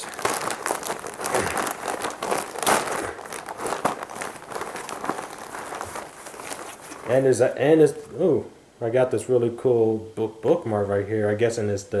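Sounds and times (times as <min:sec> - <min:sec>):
plastic bag crinkling and tearing: 0:00.0 - 0:08.0.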